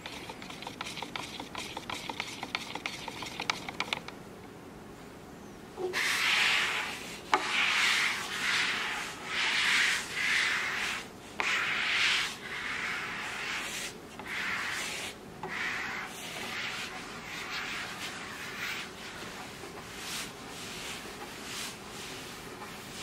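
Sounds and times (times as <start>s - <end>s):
applicator scraping on wood: 0.0s - 4.0s.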